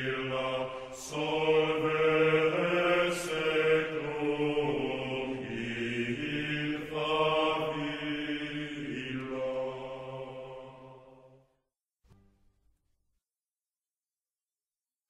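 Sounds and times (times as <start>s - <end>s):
deep voices chanting: 0.0s - 11.4s.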